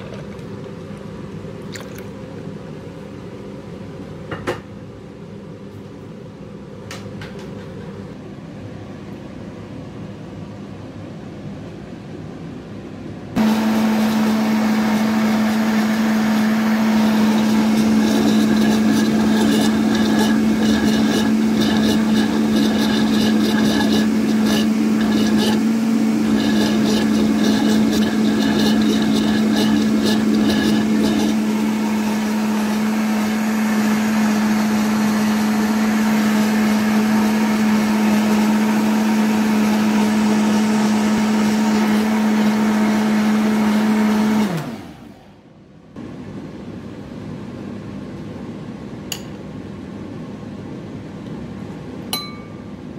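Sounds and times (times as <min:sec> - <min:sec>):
blender motor running: 0:13.4 - 0:45.2.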